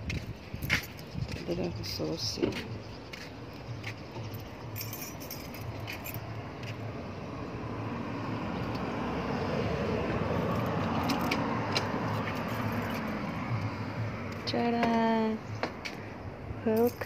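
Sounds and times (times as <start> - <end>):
road traffic rushing: 0.0 - 17.0
key ring jingling: 4.2 - 6.4, 12.1 - 13.2, 16.7 - 17.0.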